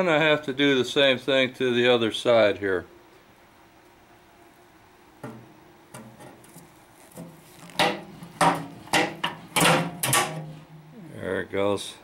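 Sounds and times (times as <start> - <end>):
metal creaking and scraping: 5.2 - 11.0.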